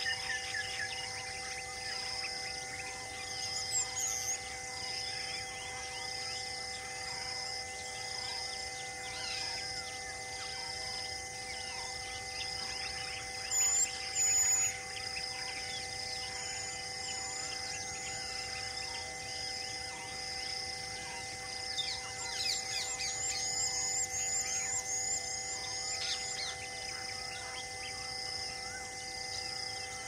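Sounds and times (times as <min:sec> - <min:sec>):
insect drone: 0:00.0 - 0:30.0
birds chirping and calling: 0:11.5 - 0:19.0, 0:21.7 - 0:27.6.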